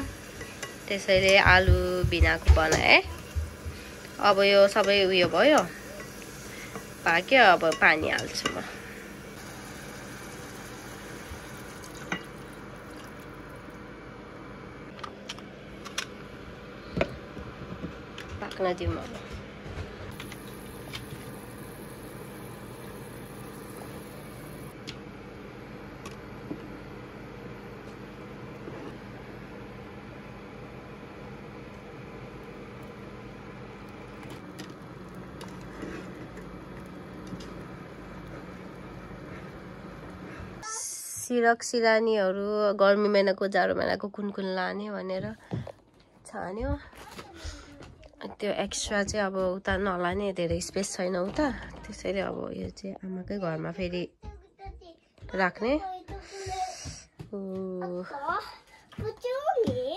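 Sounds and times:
running water hissing: 0.0s - 13.6s, 20.1s - 24.8s
machine hum and hiss: 0.0s - 18.6s, 19.3s - 40.6s.

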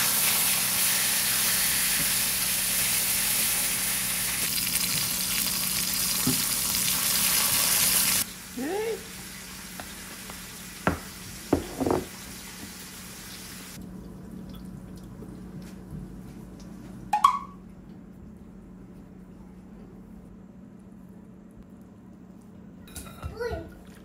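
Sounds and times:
faint steady hum: 12.2s - 24.0s.

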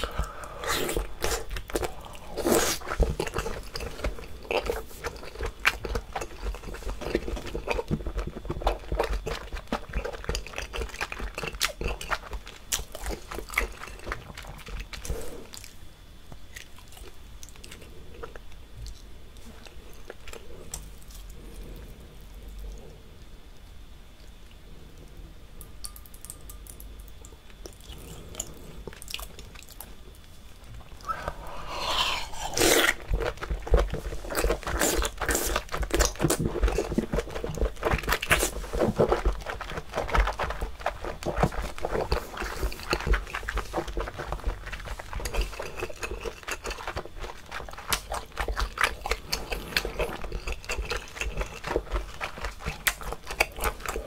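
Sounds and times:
wet chewing: 0.0s - 15.8s, 30.8s - 54.0s
loud slurp: 31.0s - 33.2s.

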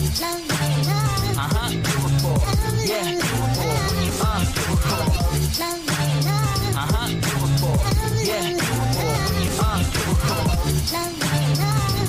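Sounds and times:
hip hop beat with bass: 0.0s - 12.0s.

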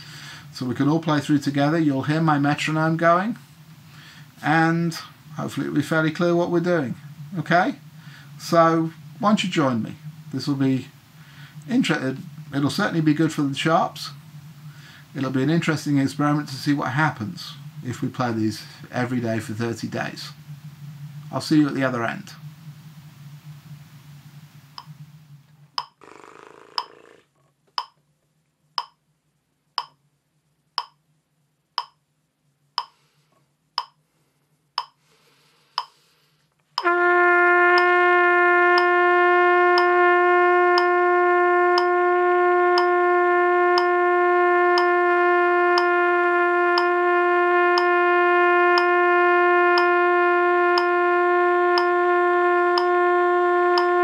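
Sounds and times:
trumpet long held note: 0.0s - 27.2s, 36.8s - 54.0s
metronome clicking: 24.8s - 25.0s, 25.8s - 26.0s, 26.8s - 27.0s, 27.8s - 28.0s, 28.8s - 29.0s, 29.8s - 30.0s, 30.8s - 31.0s, 31.8s - 32.0s, 32.8s - 33.0s, 33.8s - 34.0s, 34.8s - 35.0s, 35.8s - 36.0s, 37.7s - 37.9s, 38.7s - 39.0s, 39.7s - 40.0s, 40.7s - 40.9s, 41.7s - 42.0s, 42.7s - 43.0s, 43.7s - 44.0s, 46.8s - 47.0s, 47.7s - 48.0s, 49.7s - 49.9s, 51.7s - 52.0s, 52.7s - 53.0s, 53.8s - 54.0s.

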